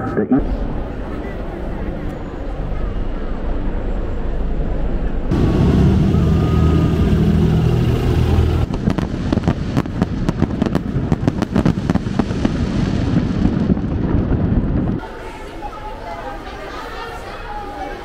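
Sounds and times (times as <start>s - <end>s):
loud low rumble: 0.4s - 15.1s
fireworks crackling: 5.3s - 15.1s.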